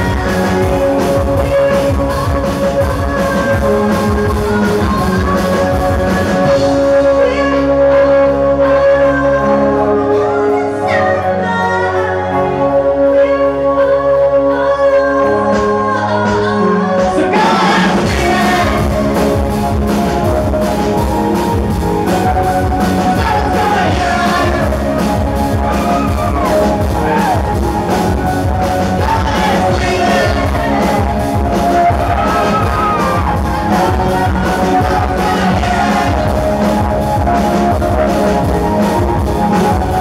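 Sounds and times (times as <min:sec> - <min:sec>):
drum kit beat: 0:00.0 - 0:07.0, 0:17.1 - 0:40.0
woman singing: 0:00.0 - 0:19.6, 0:23.0 - 0:27.2, 0:28.8 - 0:38.0
electric guitar: 0:00.0 - 0:40.0
keyboard: 0:00.0 - 0:40.0.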